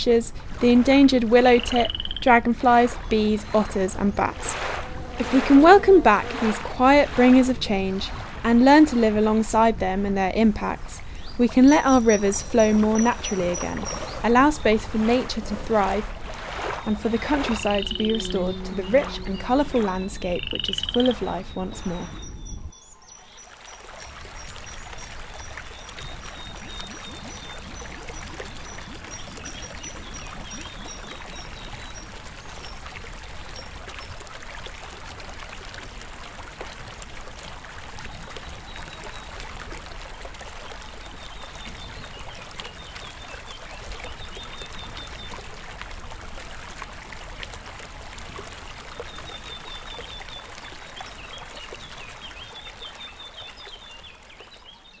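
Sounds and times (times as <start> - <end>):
songbird singing: 0.0 - 32.9, 40.6 - 45.5, 49.0 - 55.0
stream water trickling: 0.0 - 55.0.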